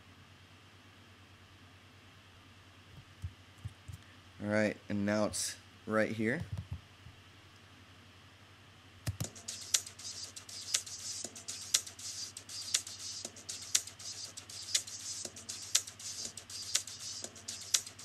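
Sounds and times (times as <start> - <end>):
electronic drum beat: 9.1 - 18.0
fast high ticking: 9.1 - 18.0.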